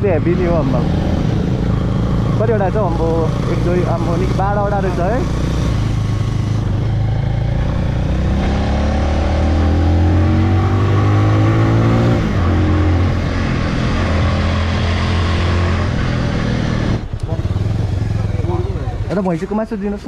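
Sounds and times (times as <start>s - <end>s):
motorcycle engine running: 0.0s - 10.5s, 12.0s - 19.9s.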